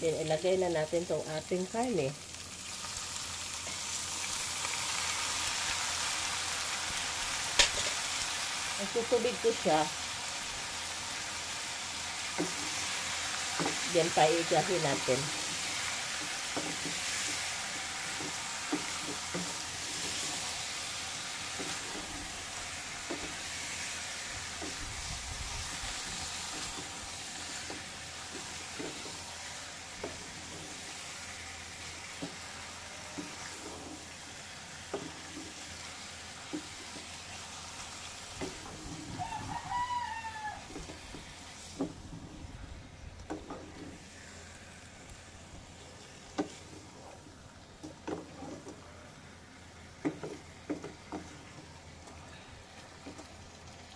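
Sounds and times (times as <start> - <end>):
meat sizzling in a pot: 0.0 - 53.9
rooster crowing: 39.0 - 40.9.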